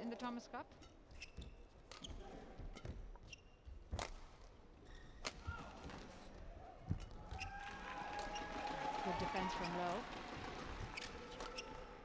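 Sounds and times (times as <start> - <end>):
shoe squeaks on court: 0.8 - 4.1, 10.9 - 11.9.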